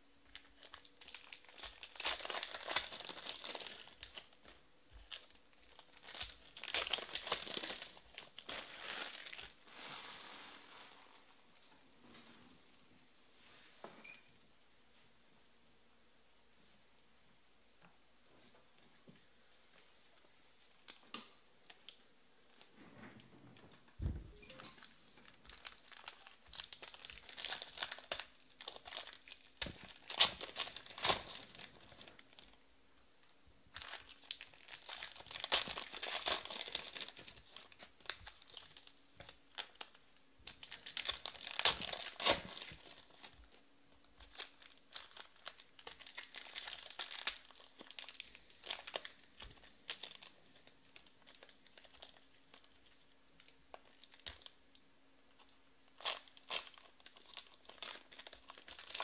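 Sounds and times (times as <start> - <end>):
foil wrappers crinkling and tearing: 0.3 - 11.3, 24.7 - 32.6, 33.7 - 54.6, 55.3 - 59.0.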